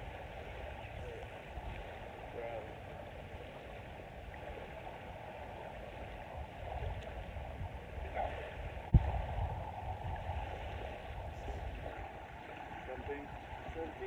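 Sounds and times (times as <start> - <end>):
small waves on sandy shore: 0.0 - 14.0
wind rumbling on microphone: 0.0 - 14.0.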